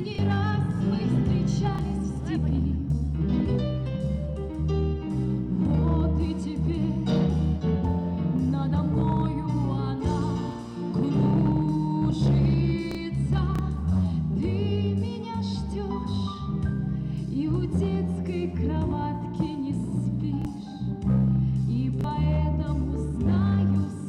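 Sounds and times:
instrumental accompaniment: 0.0 - 24.0
steady bass line: 0.0 - 24.0
person singing: 5.6 - 16.7.

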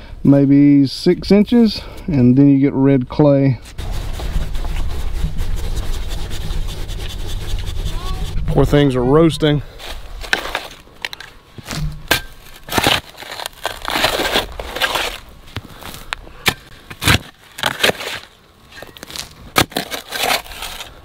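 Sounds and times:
shovel scraping into soil: 9.8 - 10.8, 11.6 - 21.0
shovel blade knocking stones: 16.4 - 18.3.

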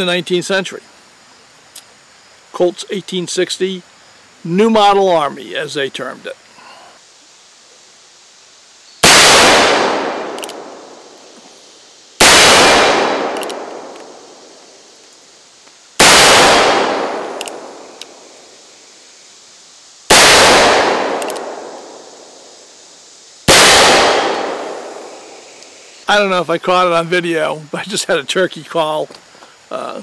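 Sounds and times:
revolver shots echoing: 23.5 - 25.2.

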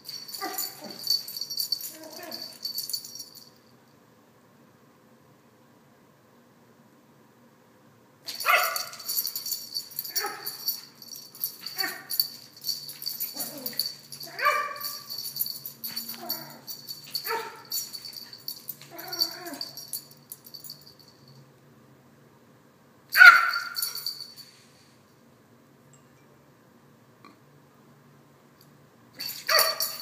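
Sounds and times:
collar tags jingling: 0.0 - 3.6, 8.3 - 21.4, 23.2 - 24.6, 29.2 - 30.0.

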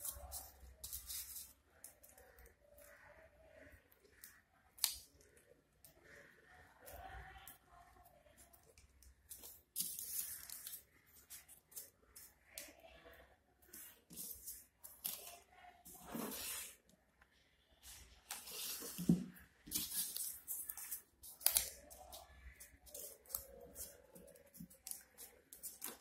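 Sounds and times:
paper rustling and crinkling: 13.8 - 16.8, 17.9 - 26.0.

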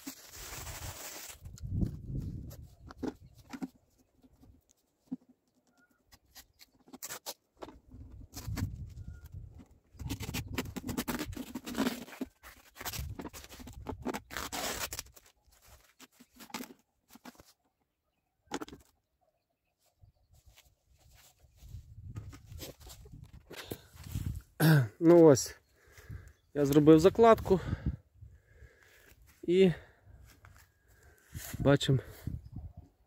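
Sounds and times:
packing tape peeling off roll: 0.0 - 1.6, 6.2 - 7.4, 10.0 - 17.4.

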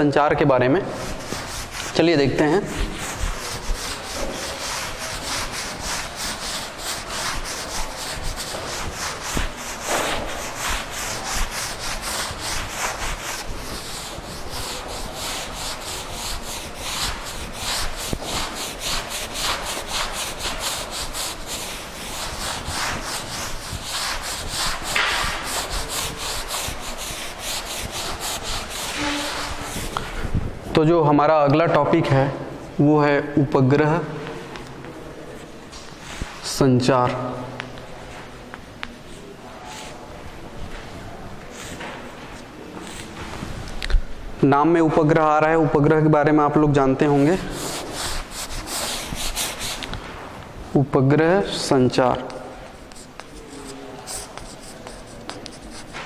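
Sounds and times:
duster rubbing blackboard: 0.8 - 30.5, 46.8 - 50.2, 52.6 - 56.0.

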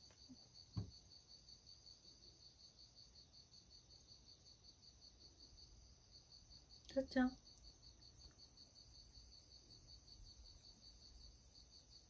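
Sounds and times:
cricket chirping: 0.0 - 12.0
low thump: 0.8 - 1.0.

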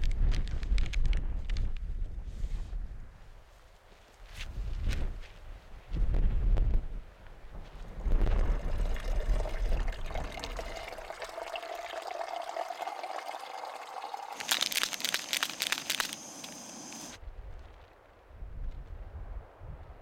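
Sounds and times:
liquid pouring into a cup: 8.2 - 17.1
foil sachet crinkling: 14.4 - 17.2.

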